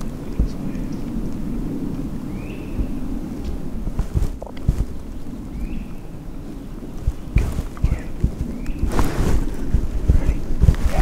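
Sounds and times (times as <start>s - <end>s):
rushing wind gust: 0.0s - 11.0s
wind buffeting microphone: 0.0s - 11.0s.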